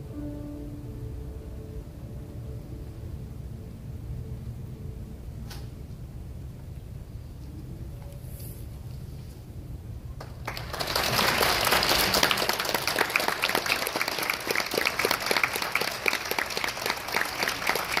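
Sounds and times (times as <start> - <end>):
audience applauding: 10.2 - 18.0.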